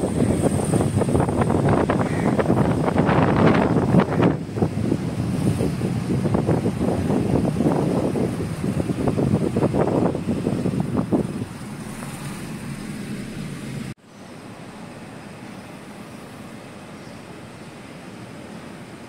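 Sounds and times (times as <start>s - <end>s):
wind buffeting microphone: 0.0s - 14.0s
car driving: 0.0s - 18.9s.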